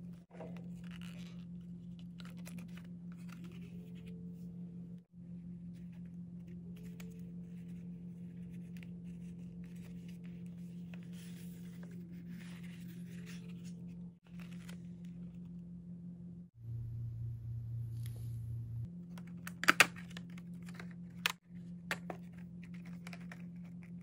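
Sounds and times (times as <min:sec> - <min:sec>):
steady low hum: 0:00.0 - 0:24.0
paper rustling: 0:08.4 - 0:15.0.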